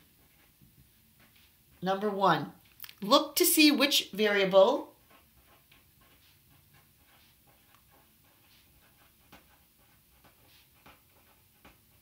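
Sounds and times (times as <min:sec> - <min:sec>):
pen scratching on paper: 0:00.0 - 0:02.1, 0:03.0 - 0:12.0.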